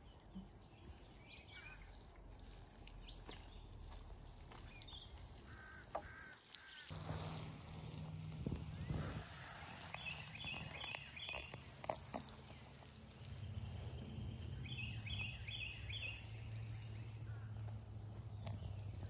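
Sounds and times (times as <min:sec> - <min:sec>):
bird or insect chirping: 0:00.0 - 0:19.0
steady low hum: 0:06.9 - 0:19.0.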